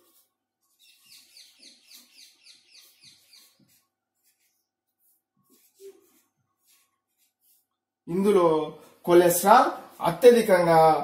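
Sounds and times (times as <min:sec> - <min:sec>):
marker squeaking on a whiteboard: 0:00.0 - 0:08.0.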